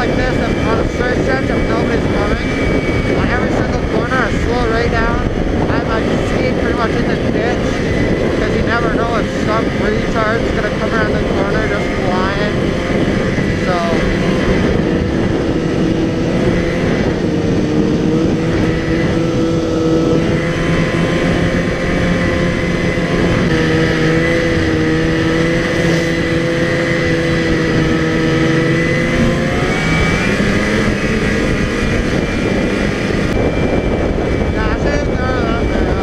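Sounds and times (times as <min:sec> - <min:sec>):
snowmobile engine running: 0:00.0 - 0:36.0
rushing noise: 0:20.4 - 0:36.0.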